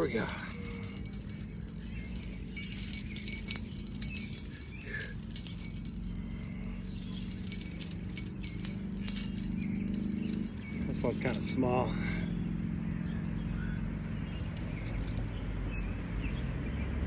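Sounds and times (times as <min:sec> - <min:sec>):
sharp ticks and jingles: 0:00.0 - 0:13.2.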